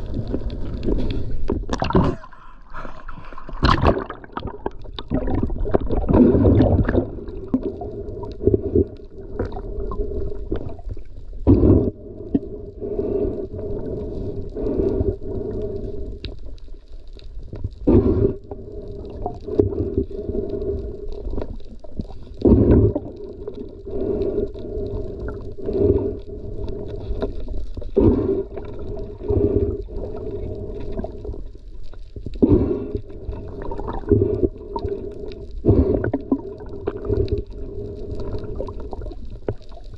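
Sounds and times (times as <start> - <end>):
low underwater hum: 0.0 - 39.9.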